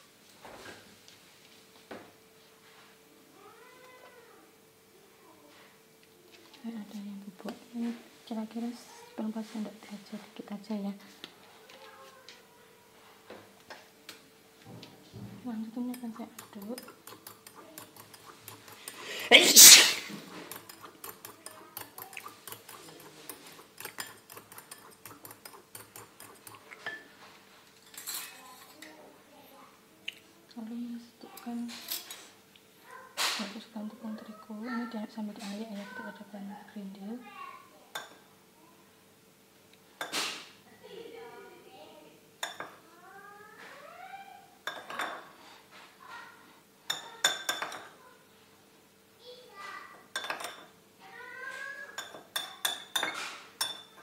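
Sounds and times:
spoon clinking against glass bowl: 20.5 - 27.0, 42.4 - 42.8, 46.9 - 47.9, 50.1 - 50.7, 52.0 - 54.0
metal spoon clinking on glass: 42.4 - 42.8, 46.9 - 47.9, 50.1 - 50.7, 52.0 - 54.0.

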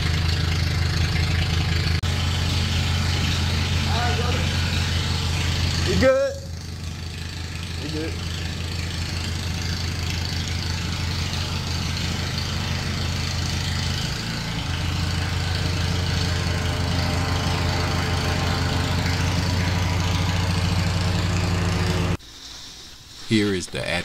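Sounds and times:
insulation blowing machine humming: 0.0 - 22.2.

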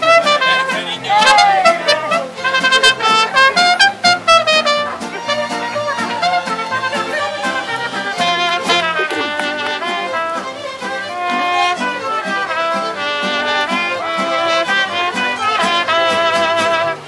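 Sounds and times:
mariachi band playing: 0.0 - 17.0.

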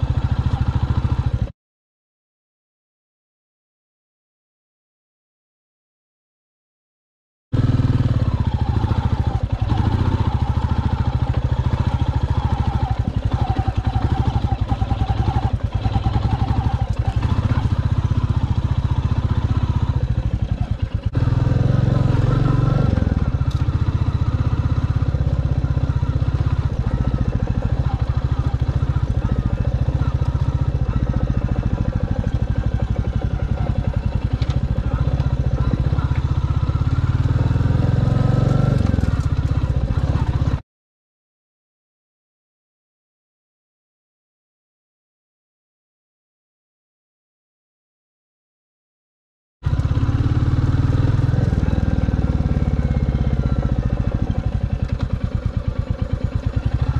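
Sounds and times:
motorcycle engine running: 0.0 - 1.5, 7.5 - 40.6, 49.6 - 56.9.

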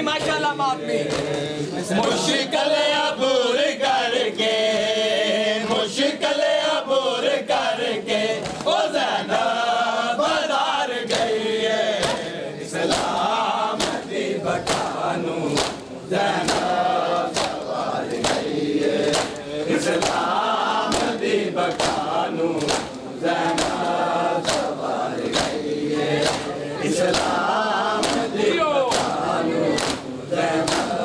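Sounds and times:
men chanting a lament: 0.0 - 31.0
hands slapping chests: 0.1 - 2.2, 8.4 - 8.7, 12.0 - 31.0.

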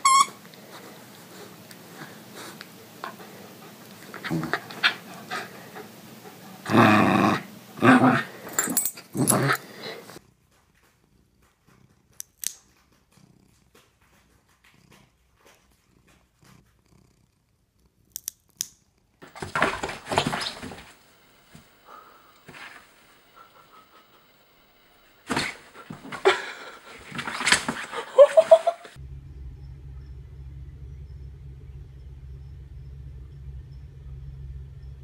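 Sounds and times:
puppy growling and barking: 2.9 - 10.2
scuffling and rustling: 19.2 - 24.1, 25.2 - 29.0.

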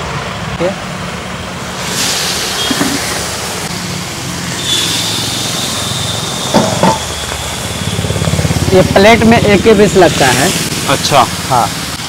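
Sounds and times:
meat deep-frying in oil: 1.7 - 7.8
thin high whistle-like tone: 4.6 - 8.2.

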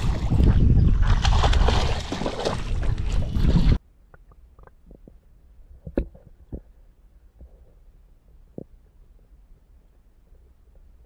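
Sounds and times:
wind buffeting microphone: 0.0 - 3.8.

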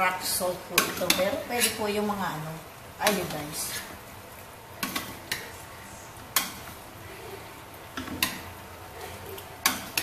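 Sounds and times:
spatula stirring stew in pot: 0.6 - 2.0, 3.0 - 10.0.

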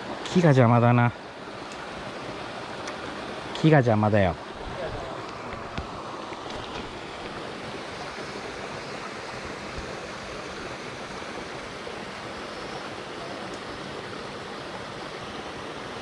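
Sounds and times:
stream flowing over rocks: 0.0 - 16.0.

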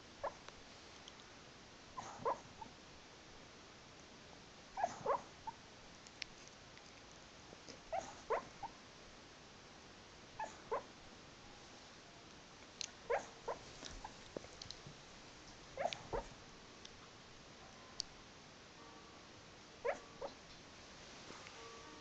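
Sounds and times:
dog whimpering and yipping: 2.0 - 2.7, 4.8 - 5.6, 7.9 - 8.7, 10.4 - 10.9, 13.1 - 13.6, 15.8 - 16.3, 19.8 - 20.4.

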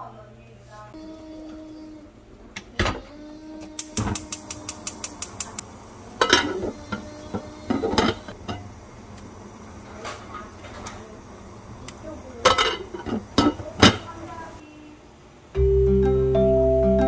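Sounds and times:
gas igniter clicking: 3.8 - 5.7, 11.8 - 12.1.

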